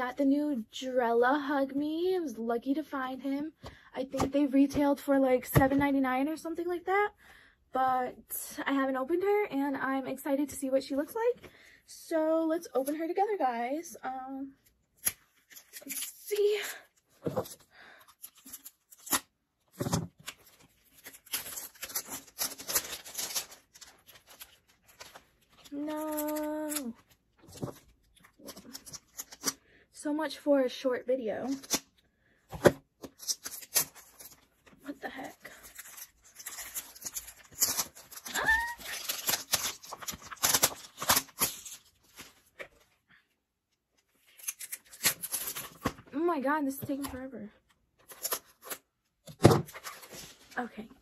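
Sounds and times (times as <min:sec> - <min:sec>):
plastic band crinkling and tearing: 0:14.7 - 0:29.6, 0:31.5 - 0:32.0, 0:32.7 - 0:42.9, 0:43.9 - 0:46.1.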